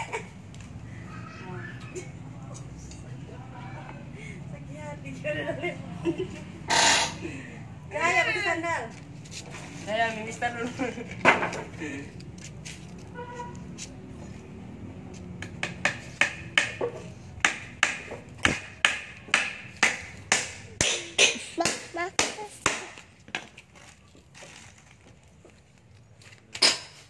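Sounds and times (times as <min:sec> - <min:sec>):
hammer striking wooden boards: 0:15.4 - 0:23.4.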